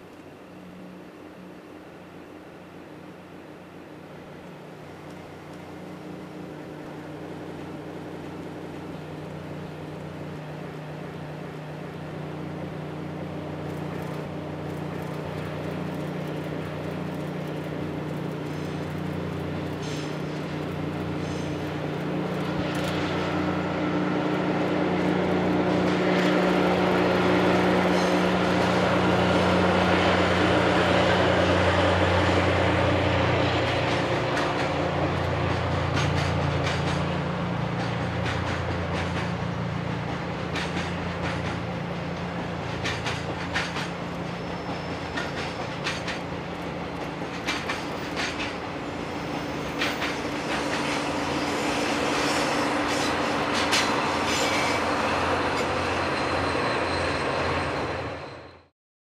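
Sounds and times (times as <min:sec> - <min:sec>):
diesel locomotive engine drone: 0:00.0 - 0:58.7
wagon wheels clicking over rail joints: 0:35.5 - 0:39.4, 0:40.0 - 0:48.6.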